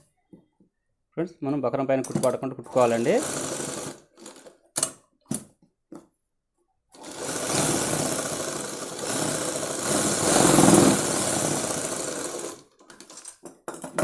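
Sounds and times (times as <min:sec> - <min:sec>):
sewing machine stitching: 0:02.2 - 0:04.6, 0:07.0 - 0:13.3.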